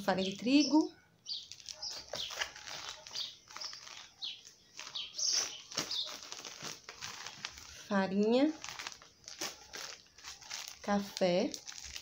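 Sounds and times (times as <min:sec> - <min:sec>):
plastic packaging crinkling: 0:01.3 - 0:12.0.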